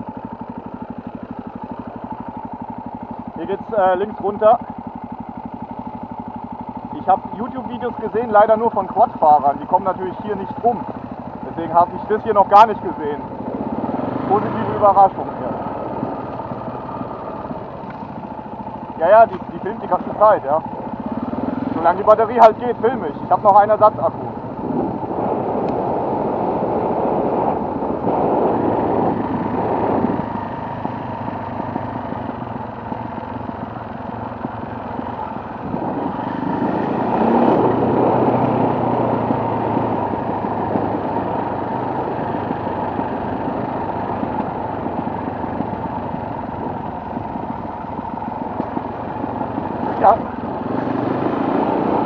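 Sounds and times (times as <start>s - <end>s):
motorcycle engine running: 0.0s - 52.0s
wind noise on microphone: 24.2s - 31.0s, 35.3s - 52.0s.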